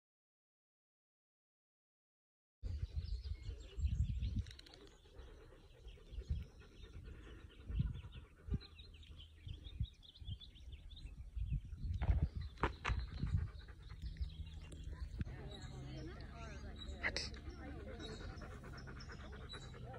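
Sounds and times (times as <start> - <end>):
wind rumble on microphone: 2.6 - 15.8
small birds chirping: 2.6 - 19.9.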